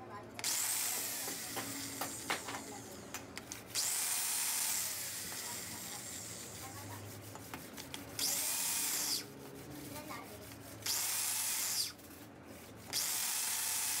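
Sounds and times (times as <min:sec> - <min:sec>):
power tool whine: 0:00.4 - 0:02.9, 0:03.7 - 0:06.5, 0:08.2 - 0:09.3, 0:10.8 - 0:12.0, 0:12.9 - 0:14.0
valve grinding noise: 0:00.4 - 0:07.4, 0:08.1 - 0:14.0.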